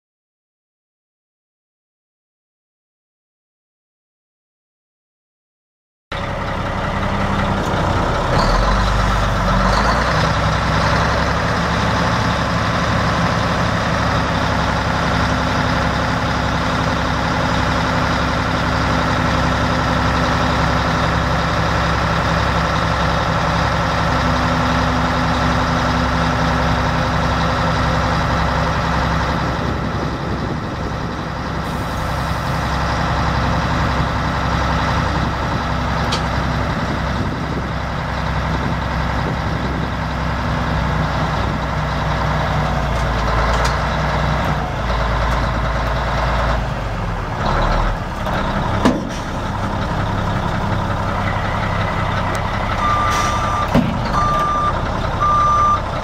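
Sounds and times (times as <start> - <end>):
diesel truck engine running: 6.1 - 56.0
hydraulic hoist raising dump bed: 52.4 - 55.8.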